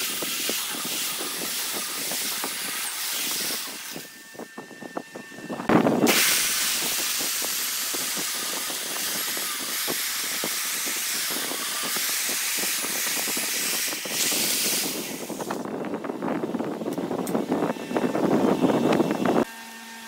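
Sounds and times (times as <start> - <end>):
lathe tool hissing into wood: 0.0 - 4.2, 5.7 - 15.6.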